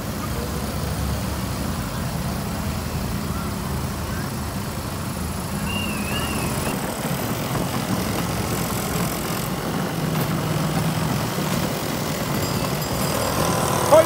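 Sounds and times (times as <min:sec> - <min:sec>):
moped engines passing: 0:00.0 - 0:14.0
warbling whistle: 0:05.6 - 0:06.8.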